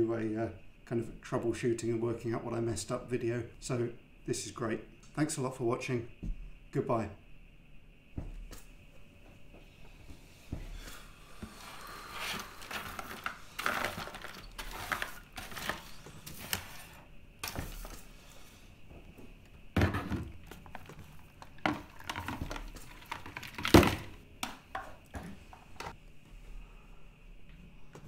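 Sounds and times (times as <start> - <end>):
small objects clattering: 12.2 - 18.0, 19.8 - 24.9.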